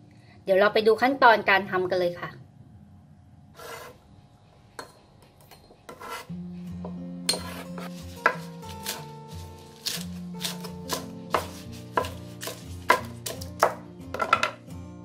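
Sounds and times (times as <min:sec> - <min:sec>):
knife chopping on wooden board: 0:05.9 - 0:14.6.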